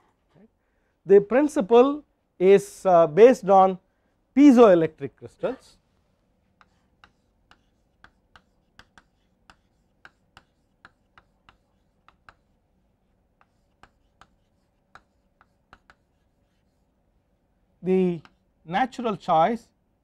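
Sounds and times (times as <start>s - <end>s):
chalk tapping and scratching: 5.3s - 17.0s, 18.0s - 18.5s.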